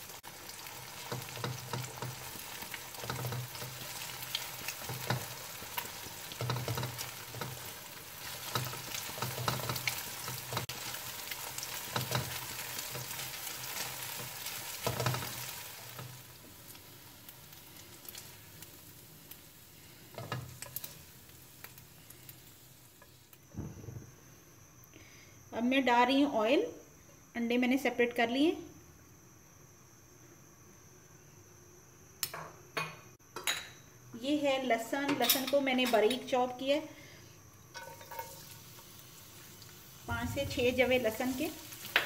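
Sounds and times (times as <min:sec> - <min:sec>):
eggs sizzling in hot oil: 0:00.0 - 0:23.4, 0:35.2 - 0:42.0.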